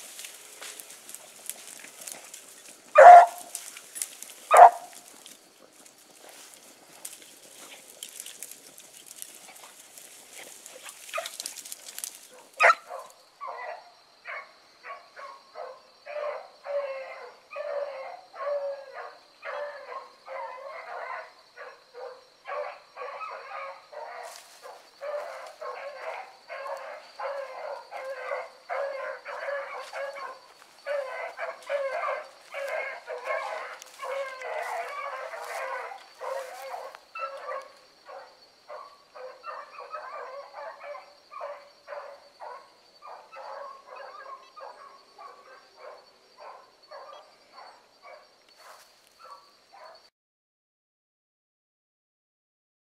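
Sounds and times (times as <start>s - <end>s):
rustling: 0.0s - 12.7s
pack of dogs baying: 0.5s - 3.7s, 4.3s - 5.2s, 7.6s - 50.1s.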